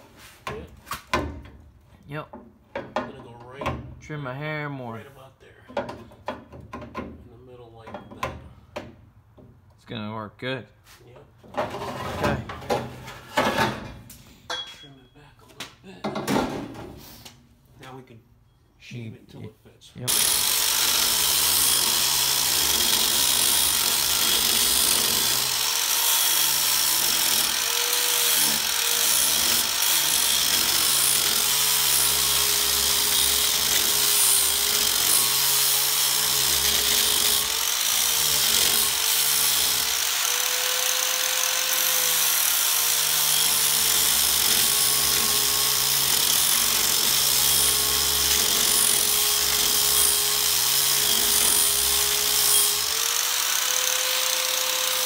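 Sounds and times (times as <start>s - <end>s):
angle grinder grinding steel: 20.1s - 55.0s.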